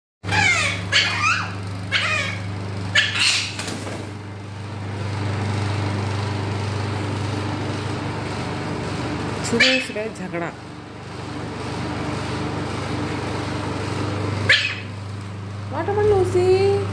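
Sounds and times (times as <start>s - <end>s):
harsh animal cries: 0.2s - 3.6s, 9.5s - 10.0s, 14.5s - 14.9s.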